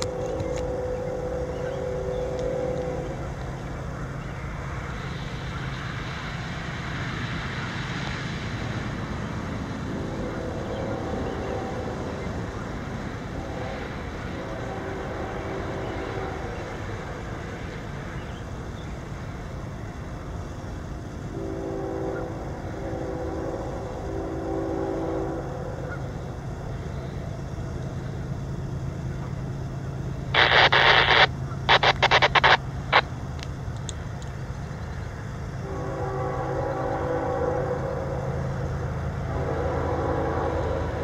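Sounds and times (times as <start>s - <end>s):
distant locomotive horn blasts: 0.0s - 4.4s, 9.9s - 18.5s, 21.3s - 27.2s, 35.5s - 41.0s
low steady rumble: 0.0s - 41.0s
harsh bursts of noise: 30.4s - 33.0s.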